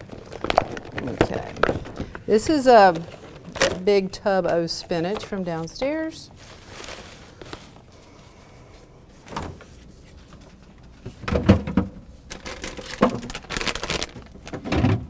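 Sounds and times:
jars and containers rattling: 0:00.0 - 0:05.8.

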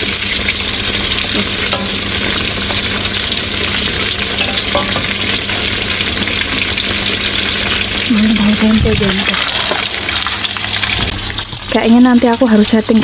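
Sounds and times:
tofu sizzling in hot oil: 0:00.0 - 0:13.0
metal spatula tapping wok: 0:01.6 - 0:02.1, 0:04.4 - 0:05.4.

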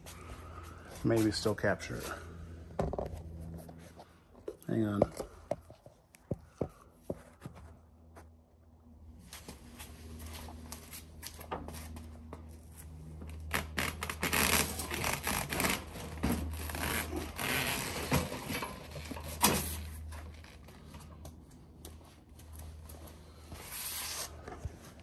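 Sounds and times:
hand truck scraping and rustling: 0:00.0 - 0:02.3, 0:14.2 - 0:21.2.

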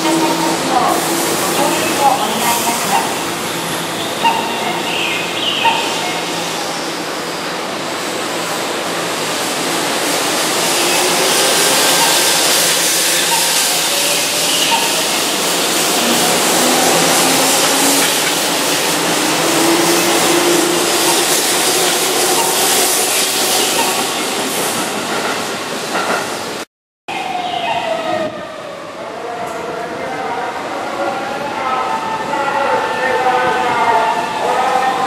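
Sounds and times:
train wheels rumbling on rails: 0:00.0 - 0:26.7.

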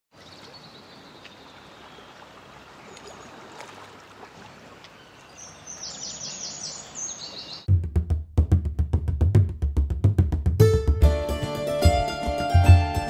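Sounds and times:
soft hiss of calm water: 0:00.2 - 0:07.6
bird chirping: 0:04.9 - 0:07.7.

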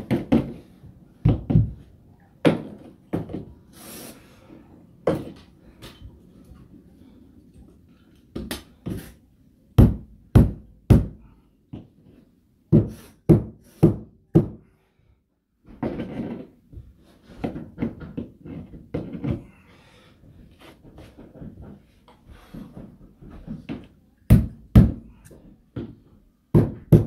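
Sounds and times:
sharp knocks and thuds: 0:01.2 - 0:03.5.

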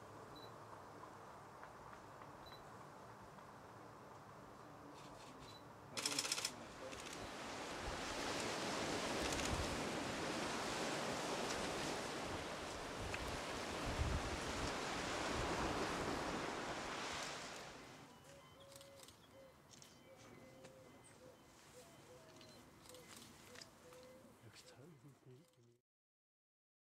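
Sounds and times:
wind: 0:00.0 - 0:25.8
sharp clicks: 0:05.4 - 0:07.2
choppy sea: 0:06.5 - 0:18.1
faint bird calls: 0:18.1 - 0:25.4.

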